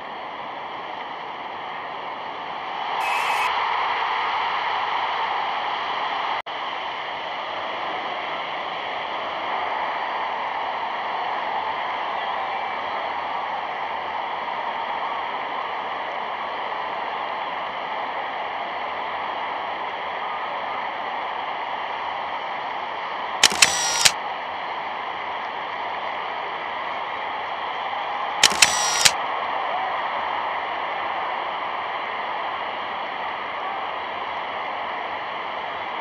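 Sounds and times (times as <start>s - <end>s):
sharp clicks: 23.4s - 24.2s, 28.4s - 29.2s.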